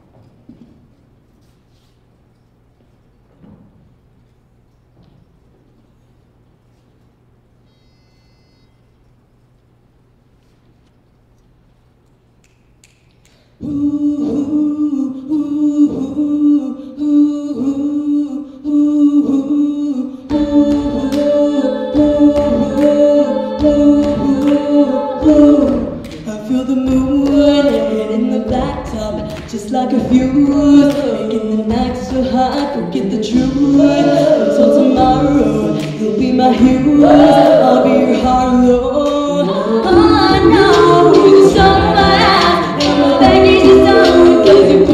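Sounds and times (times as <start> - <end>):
female a cappella group singing: 13.6 - 44.9.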